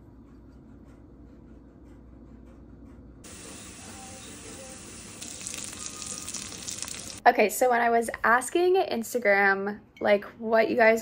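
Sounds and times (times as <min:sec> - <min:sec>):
shallots sizzling in oil: 0:03.2 - 0:07.2.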